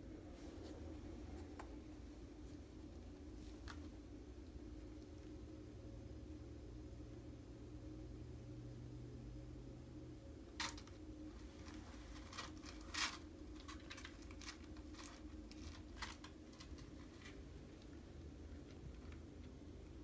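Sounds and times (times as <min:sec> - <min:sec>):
kitten scratching in cat litter: 0:10.5 - 0:19.7.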